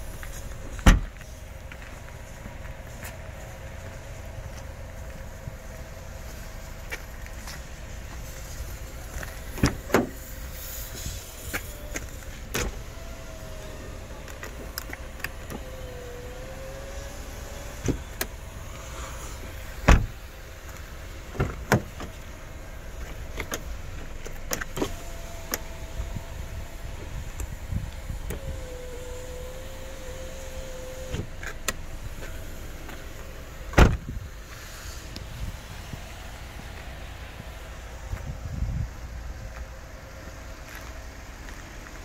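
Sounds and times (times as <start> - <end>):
clicks and knocks from car door: 0.8 - 1.2, 9.6 - 10.2, 19.8 - 20.1, 21.3 - 22.2, 33.7 - 34.1
power window motor whine: 11.8 - 20.2, 23.4 - 34.0.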